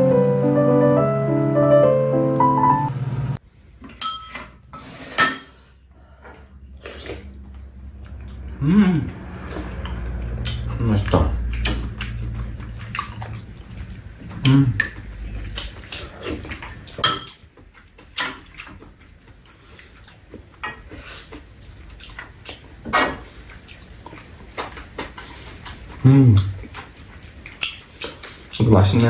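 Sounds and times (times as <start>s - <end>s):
spoons clinking against bowls: 4.0s - 4.6s, 17.0s - 17.4s
low voice sounds: 8.6s - 9.2s.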